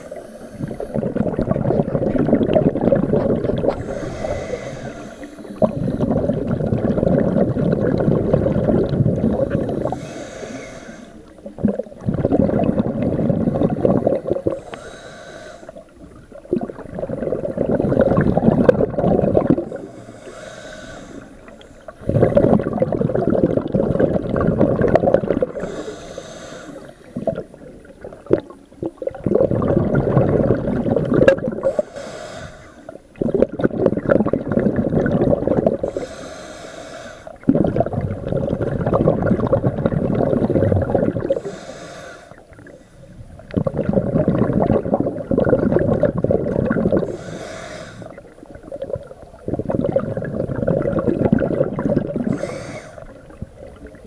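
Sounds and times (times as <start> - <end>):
regulator inhale hiss: 0.0 - 1.1, 3.6 - 6.4, 9.4 - 11.4, 14.4 - 15.9, 19.5 - 22.1, 25.5 - 27.3, 31.6 - 33.1, 35.8 - 37.5, 41.2 - 43.5, 47.0 - 48.5, 52.2 - 53.9
underwater exhale bubbles: 0.0 - 54.0.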